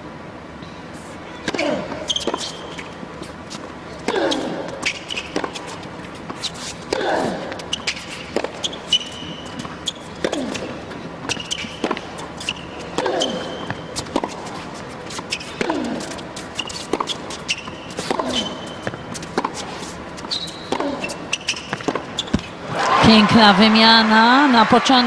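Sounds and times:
shoe squeaks on court: 0:00.9 - 0:07.0, 0:07.6 - 0:22.6
tennis ball bouncing: 0:01.4 - 0:22.6
racket striking ball: 0:04.0 - 0:22.5.

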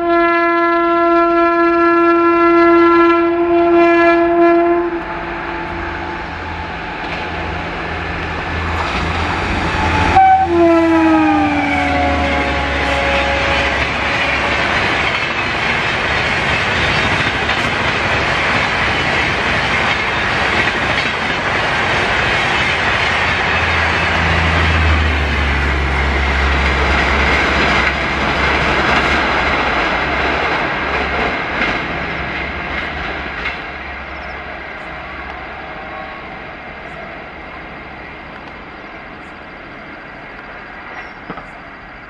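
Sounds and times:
locomotive horn: 0:00.0 - 0:06.8, 0:09.6 - 0:15.0
low train rumble: 0:00.0 - 0:42.0
train wheels clattering on rails: 0:06.6 - 0:35.4, 0:40.3 - 0:41.7.

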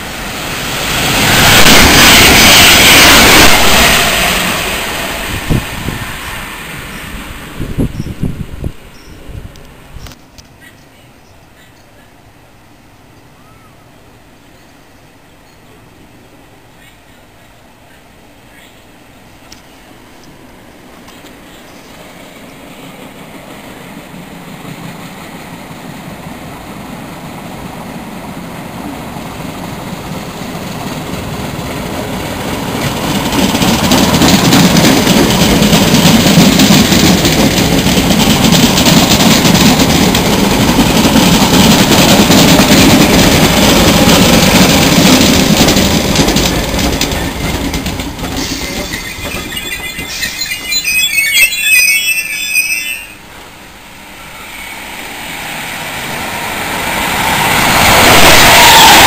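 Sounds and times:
train rumbling past: 0:00.0 - 0:10.4, 0:11.2 - 0:59.0
wheel squeals: 0:47.1 - 0:53.2.

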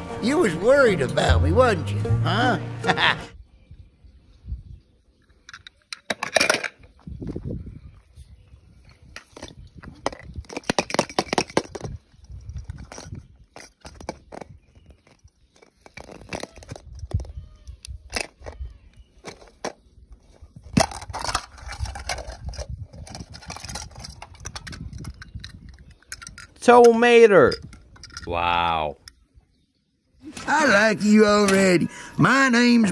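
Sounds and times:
plastic toys clicking and knocking: 0:05.4 - 0:07.0, 0:09.1 - 0:28.3.

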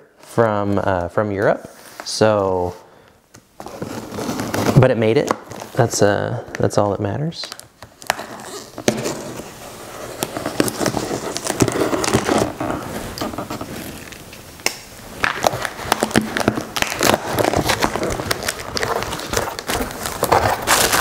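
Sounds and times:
plastic wrap and tape ripping: 0:03.6 - 0:05.9, 0:07.4 - 0:21.0.

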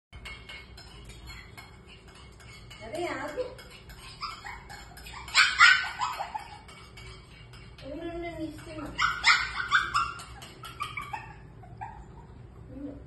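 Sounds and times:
dishes clinking: 0:00.2 - 0:11.9
puppies yipping and whining: 0:03.8 - 0:07.1, 0:08.8 - 0:12.6.

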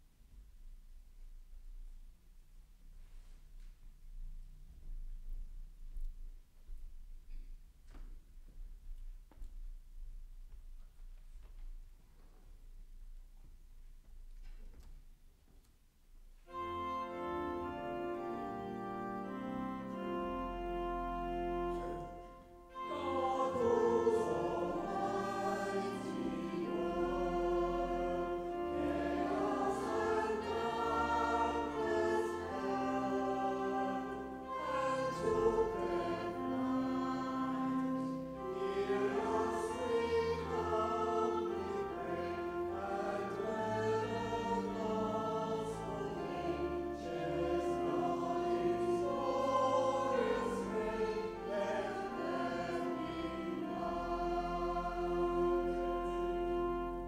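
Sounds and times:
choir singing a hymn: 0:16.5 - 0:57.0.

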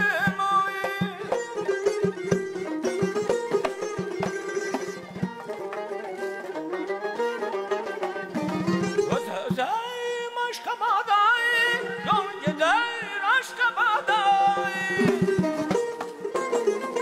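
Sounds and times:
low string notes: 0:00.0 - 0:09.8.

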